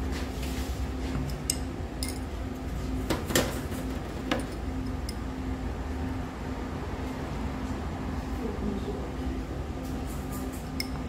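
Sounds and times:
low room hum: 0.0s - 11.0s
tableware and glass clinking: 1.3s - 2.3s.

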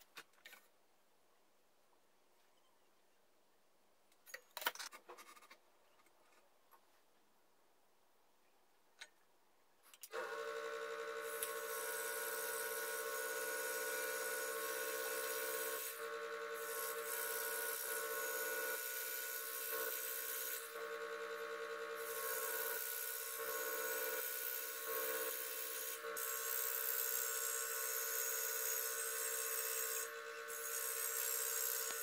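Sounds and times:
click: 9.9s - 10.2s
scroll saw cutting wood: 10.1s - 32.0s.

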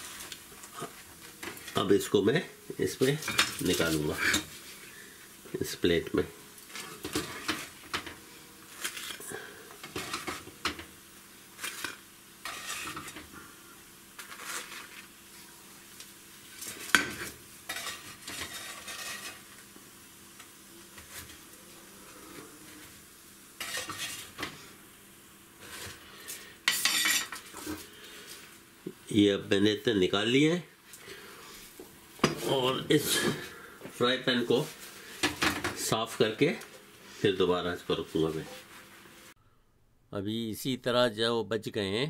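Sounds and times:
faint sizzle: 0.0s - 39.6s
spatula scraping frying pan: 6.7s - 10.8s, 11.6s - 13.4s, 14.2s - 15.1s, 16.6s - 19.7s, 23.6s - 24.8s, 25.6s - 28.4s.

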